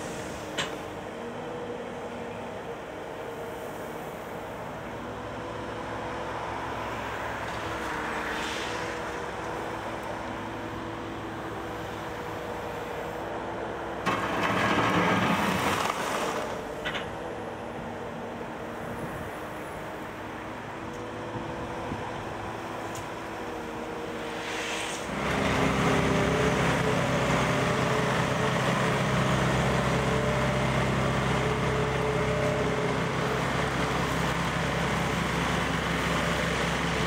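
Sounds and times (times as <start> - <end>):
excavator diesel engine running: 8.9 - 24.5, 25.1 - 37.0.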